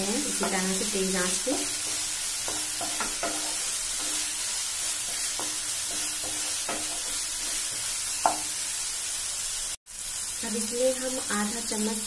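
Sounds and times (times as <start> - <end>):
food sizzling in frying pan: 0.0 - 12.0
spatula scraping pan: 0.2 - 8.6.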